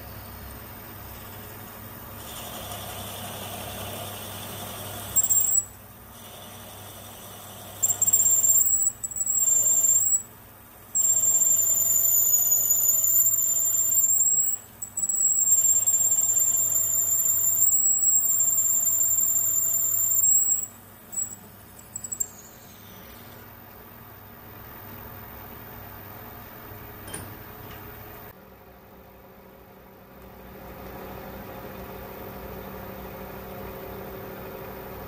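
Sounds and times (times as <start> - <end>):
lathe humming: 0.6 - 10.2
drill squealing into metal: 4.4 - 10.3, 11.0 - 23.3.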